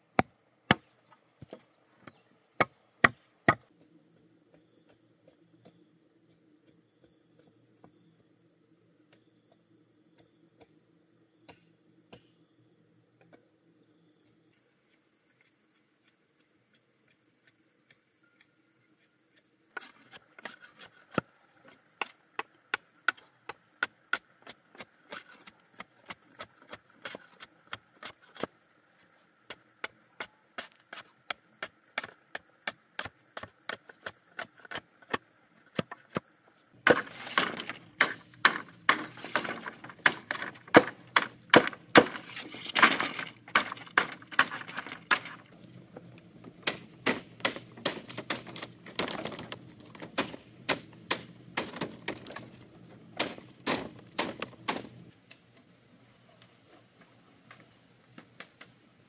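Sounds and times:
insects droning: 0.0s - 59.0s
machete chopping bamboo: 31.9s - 45.4s, 46.6s - 52.4s, 53.2s - 55.0s
bamboo strips rustling and clattering: 36.8s - 55.5s.

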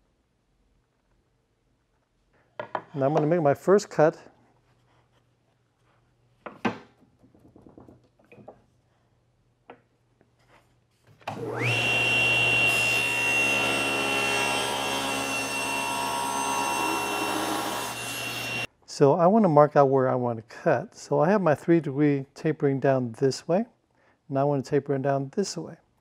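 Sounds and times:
saw blade cutting board: 11.3s - 18.7s
table saw motor whine: 11.3s - 18.7s.

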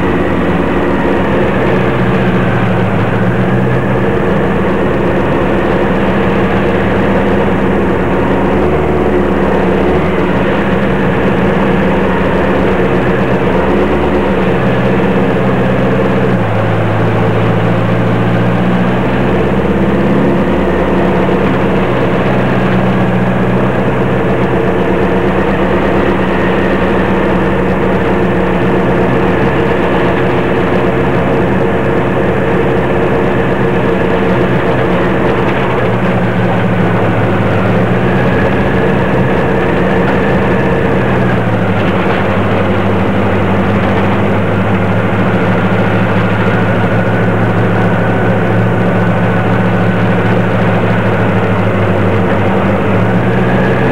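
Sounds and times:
truck engine running: 0.0s - 53.9s.

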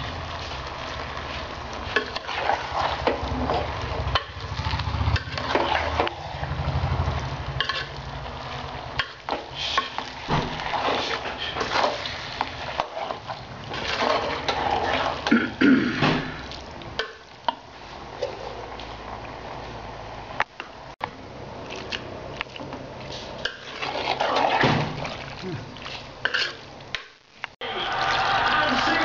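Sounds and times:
metal spoon scraping a pot: 5.1s - 6.1s, 7.6s - 8.0s, 10.6s - 15.3s, 23.2s - 24.6s, 26.2s - 26.6s.

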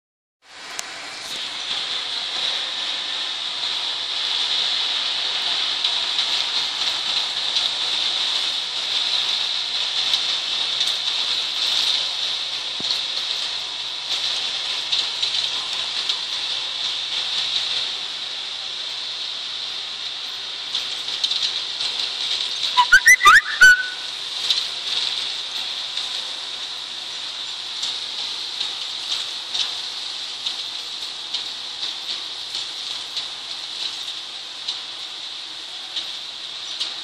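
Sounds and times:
rising whistles: 22.8s - 24.1s.

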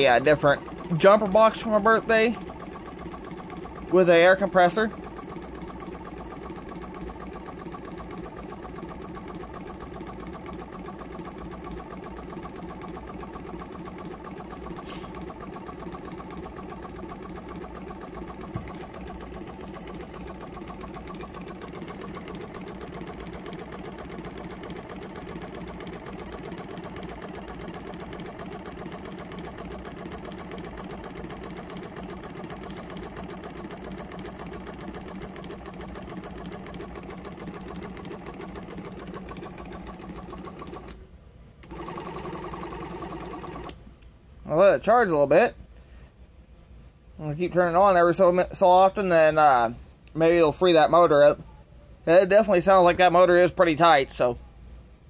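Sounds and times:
small air compressor clattering: 0.0s - 41.0s, 41.6s - 43.8s.

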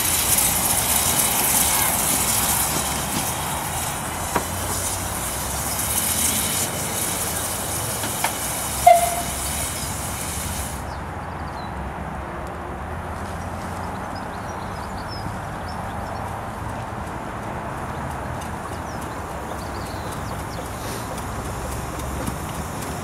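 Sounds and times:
wheels clicking over rails: 0.0s - 10.9s, 16.6s - 23.0s
steam hissing: 0.0s - 11.0s, 18.5s - 23.0s
short high squeak: 8.8s - 10.2s.

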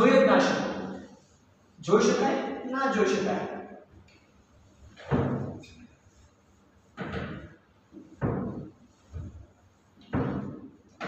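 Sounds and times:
duster wiping whiteboard: 4.5s - 11.0s.

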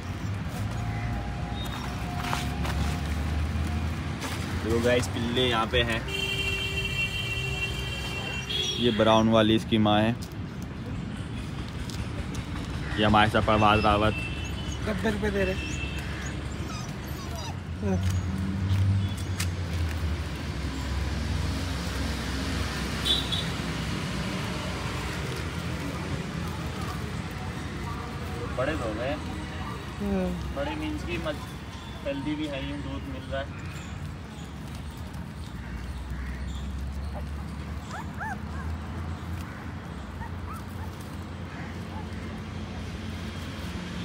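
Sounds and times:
road traffic rumble: 0.0s - 44.0s
puppies whimpering: 13.4s - 18.2s, 37.0s - 42.4s.

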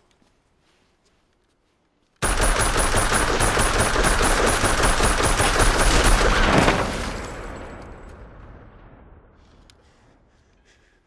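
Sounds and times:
automatic rifle fire: 2.2s - 7.3s.

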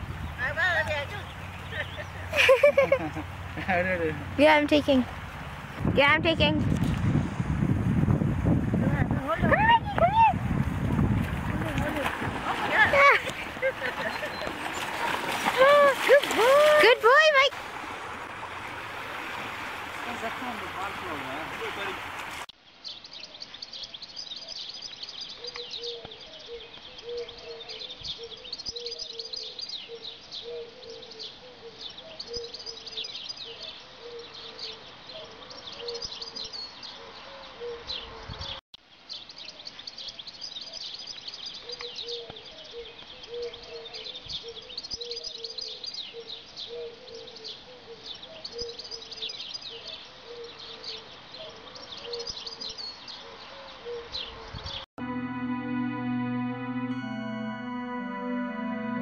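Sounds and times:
small birds chirping: 0.0s - 6.2s, 22.6s - 54.8s.

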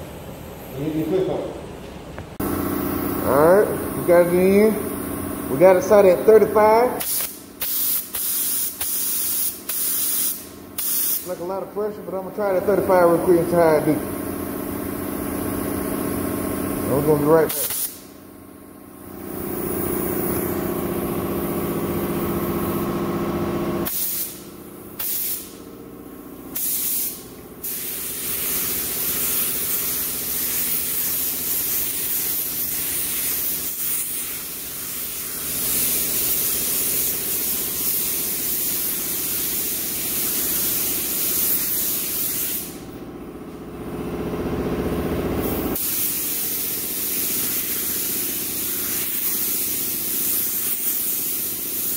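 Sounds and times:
steady low hum: 0.0s - 38.4s
spray gun hissing: 6.5s - 11.6s, 12.4s - 18.2s, 19.1s - 23.0s, 23.8s - 25.6s, 26.5s - 42.8s, 45.4s - 51.9s.

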